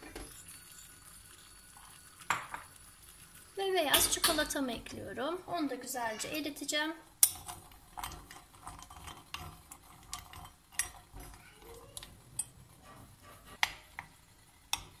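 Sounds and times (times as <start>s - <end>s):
spoon scraping glass bowl: 0.3s - 3.2s.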